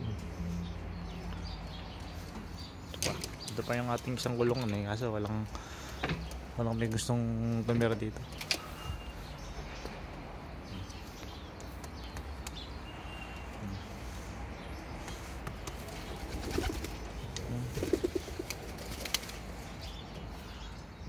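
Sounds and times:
light sharp taps: 11.2 - 12.6, 15.0 - 15.9
pigeons cooing: 16.0 - 19.4.

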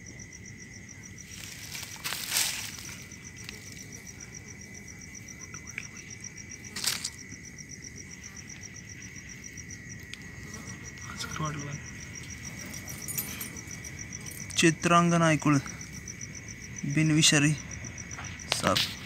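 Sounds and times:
crickets chirping: 0.0 - 19.0
rustling scuffs: 1.3 - 3.0.

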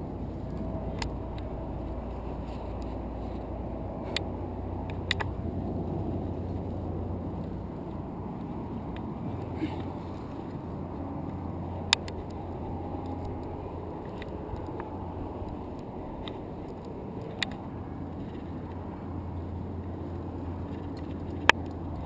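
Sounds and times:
low rumble of wind: 0.0 - 22.0
sharp clicks: 4.0 - 9.1, 10.4 - 17.6.

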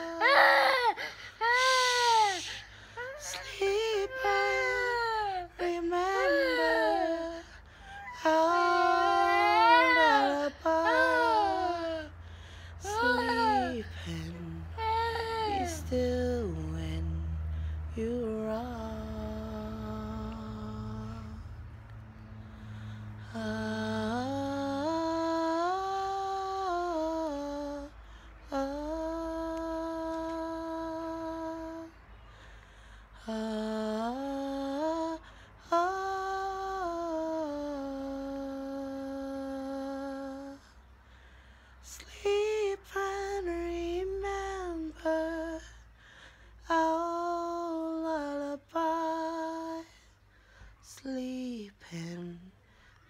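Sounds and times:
woman humming a lullaby: 0.0 - 12.2, 12.8 - 17.0, 23.3 - 32.0, 33.2 - 40.7.

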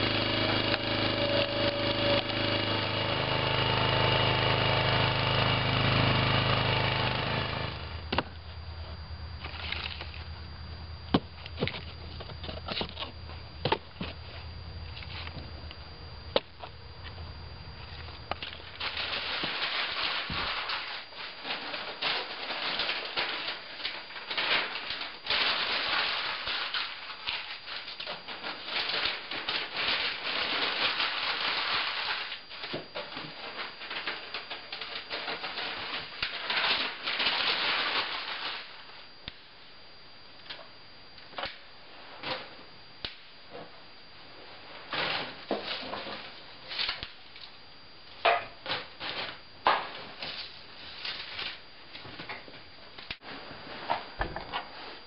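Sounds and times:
newspaper crumpling and tearing: 18.1 - 32.5, 33.4 - 38.8.

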